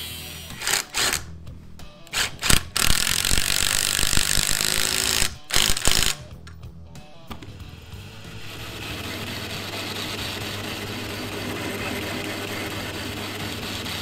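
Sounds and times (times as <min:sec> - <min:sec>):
impact driver hammering: 0:02.1 - 0:06.2.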